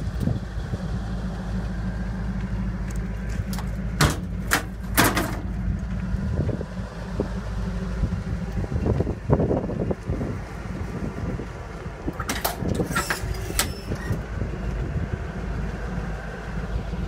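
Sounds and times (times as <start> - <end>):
steady low rumble: 0.0 - 17.0
metallic latch clicks and knocks: 12.2 - 13.9.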